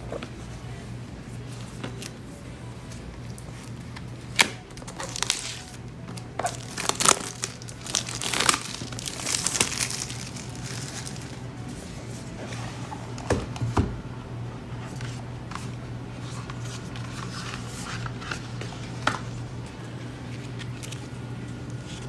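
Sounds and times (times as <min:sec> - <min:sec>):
plastic shrink-wrap crinkling and tearing: 0:04.8 - 0:11.4.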